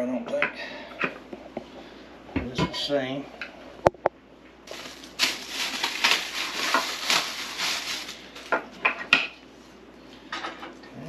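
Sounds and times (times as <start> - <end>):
plastic packaging crinkling: 4.6 - 8.7.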